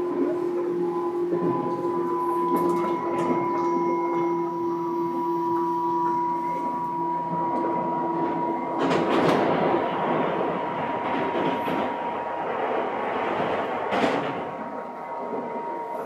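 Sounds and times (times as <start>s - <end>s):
electric train two-tone whine: 0.0s - 16.0s
rail clack: 0.0s - 16.0s
train rolling noise: 0.0s - 16.0s.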